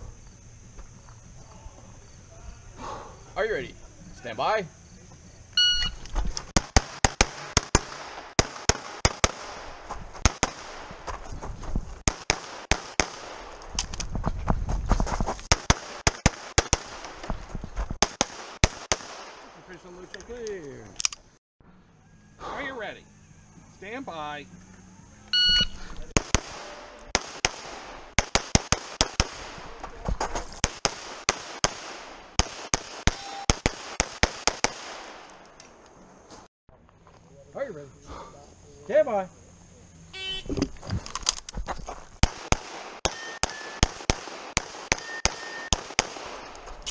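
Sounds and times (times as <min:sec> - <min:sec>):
pistol shots: 0:06.5 - 0:10.9, 0:12.1 - 0:13.5, 0:15.5 - 0:17.2, 0:18.0 - 0:19.6, 0:26.1 - 0:29.8, 0:30.6 - 0:35.4, 0:42.2 - 0:46.7.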